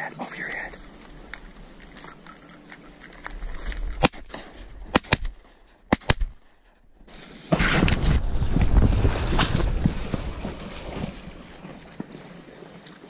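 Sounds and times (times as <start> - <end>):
shotgun shots: 4.0 - 6.7
wind buffeting microphone: 7.5 - 12.2.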